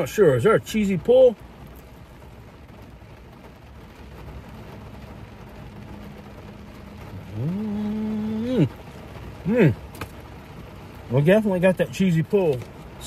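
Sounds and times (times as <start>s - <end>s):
car cabin hum: 0.0s - 13.0s
man humming mmm: 7.2s - 8.7s.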